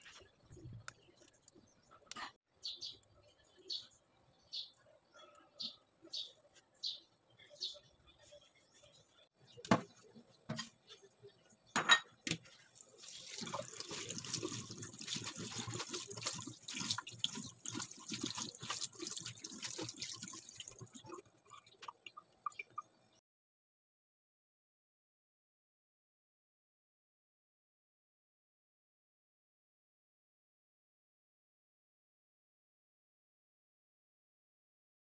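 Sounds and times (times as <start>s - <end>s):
water dripping: 12.6s - 23.0s.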